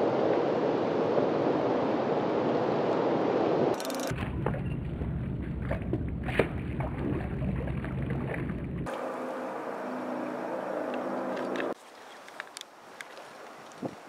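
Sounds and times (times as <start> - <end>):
wind rumble on microphone: 0.0 - 8.9, 13.7 - 14.0.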